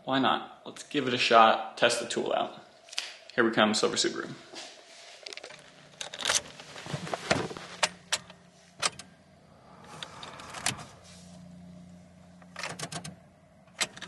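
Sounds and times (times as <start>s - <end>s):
faint steady hum: 0.0s - 14.0s
car keys jangling and clicking: 5.3s - 6.8s, 12.4s - 14.0s.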